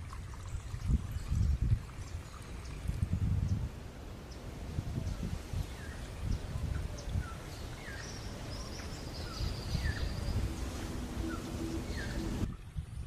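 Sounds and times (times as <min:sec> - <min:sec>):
wind on microphone: 0:00.0 - 0:13.0
small birds chirping: 0:03.4 - 0:12.4
faint steady hum: 0:03.5 - 0:12.5.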